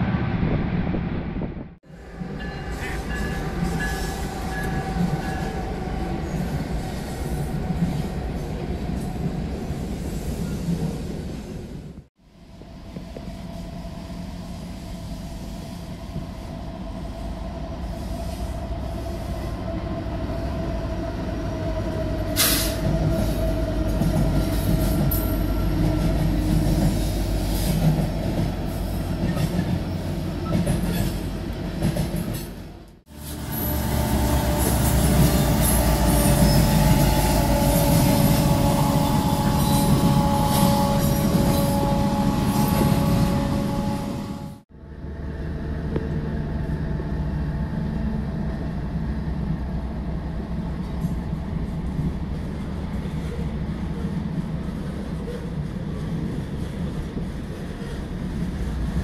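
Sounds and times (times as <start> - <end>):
train wheels rumbling on rail: 0.0 - 59.0
high train tones: 1.8 - 55.7.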